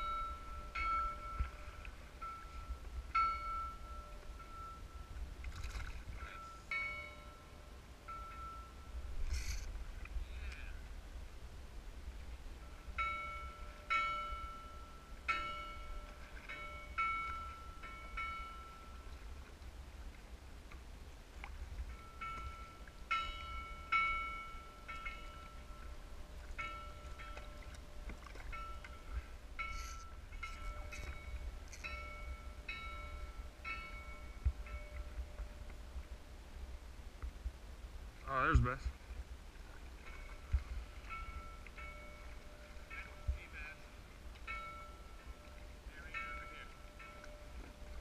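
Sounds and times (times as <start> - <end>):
buoy bell clanging: 0.0 - 5.2, 6.2 - 8.9, 13.0 - 19.1, 21.9 - 26.0, 26.6 - 35.2, 41.1 - 43.5, 44.5 - 48.0
wind rumble on microphone: 7.9 - 48.0.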